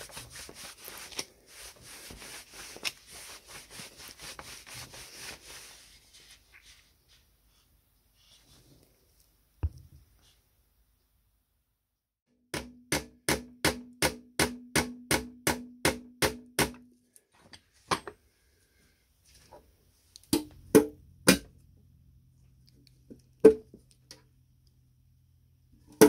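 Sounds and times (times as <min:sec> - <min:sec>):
hammer tapping sheet metal: 0:12.5 - 0:16.8.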